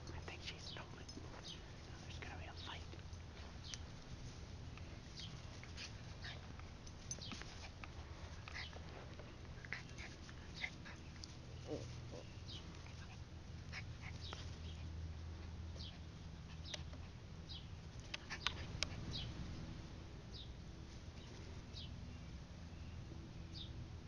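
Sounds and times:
dogs scuffling on grass: 1.0s - 13.0s.

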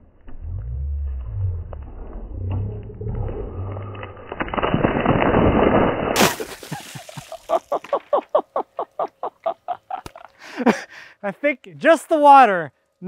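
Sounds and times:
water splashing onto wooden slab: 4.0s - 8.1s
person laughing: 6.5s - 10.9s.

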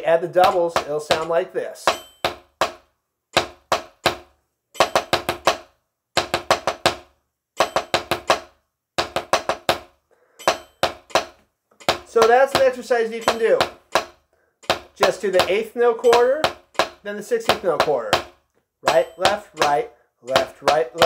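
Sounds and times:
drumstick rolls: 11.8s - 13.8s.

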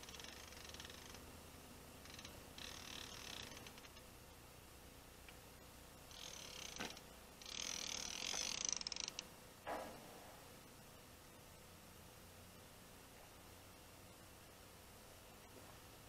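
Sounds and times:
fishing reel clicker buzzing: 0.0s - 1.2s, 2.0s - 4.0s, 6.1s - 9.3s.

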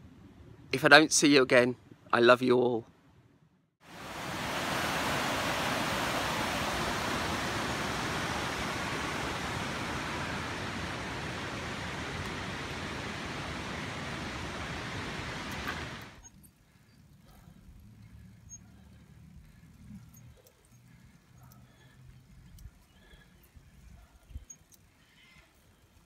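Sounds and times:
river rushing over rocks: 3.9s - 16.2s.

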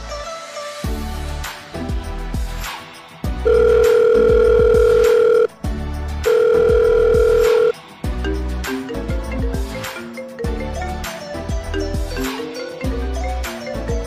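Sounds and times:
background music: 0.0s - 14.0s
long telephone beeps: 3.5s - 5.5s, 6.3s - 7.7s.

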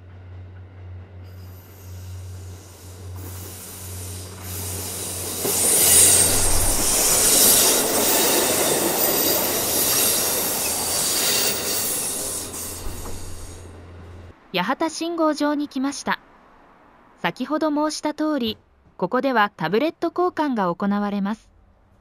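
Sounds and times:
diesel train engine drone: 0.0s - 14.5s
rumble of wheels on rail: 0.0s - 14.5s
wheel squeal: 4.4s - 13.6s.

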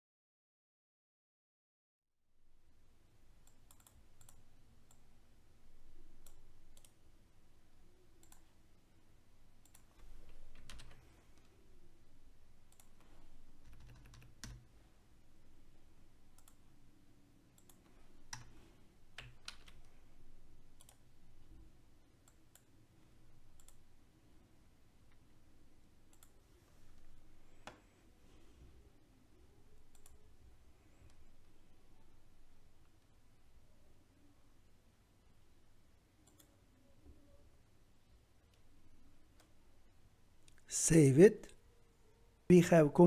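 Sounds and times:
low steady hum: 2.2s - 43.0s
keyboard and mouse clicks: 3.4s - 5.1s, 8.2s - 8.6s, 9.6s - 11.5s, 12.7s - 14.7s, 16.3s - 16.6s, 17.6s - 18.6s, 19.2s - 19.9s, 23.5s - 23.8s, 26.1s - 26.4s, 29.8s - 30.2s, 36.2s - 36.6s.

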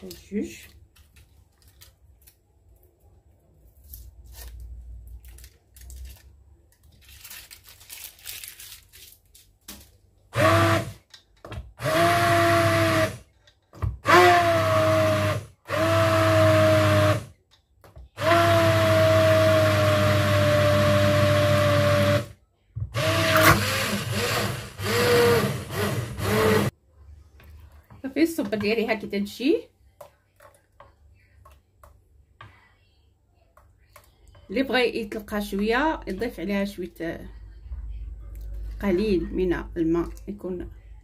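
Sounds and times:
faint handling sounds: 0.0s - 10.2s
immersion blender motor whine: 10.4s - 11.0s, 11.8s - 13.2s, 14.0s - 17.3s, 18.2s - 22.3s, 23.0s - 26.7s.

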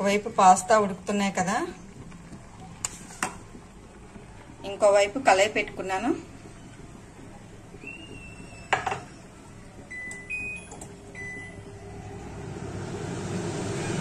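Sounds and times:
gas stove hissing: 4.7s - 11.1s.

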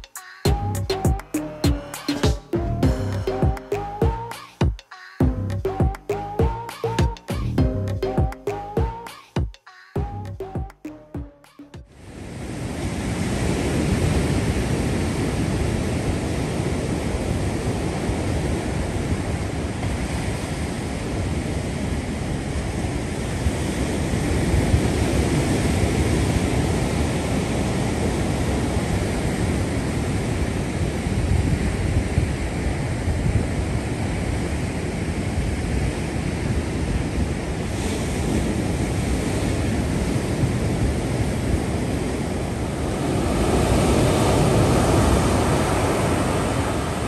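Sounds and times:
ocean surf on sand: 11.9s - 47.0s.

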